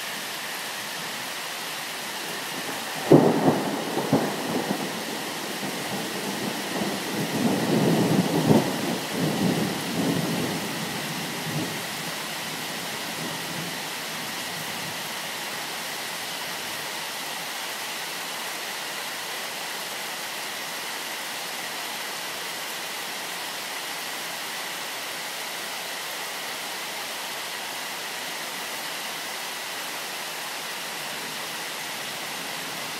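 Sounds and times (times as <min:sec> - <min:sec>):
steady rain: 0:00.0 - 0:32.9
low rumble of thunder: 0:02.5 - 0:12.0.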